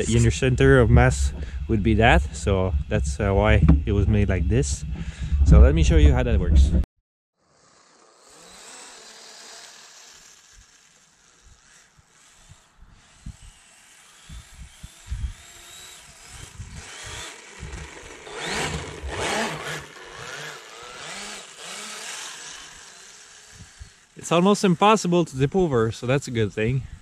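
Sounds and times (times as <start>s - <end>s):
low thumps: 0.0s - 6.9s
electric motor whining: 7.5s - 25.8s.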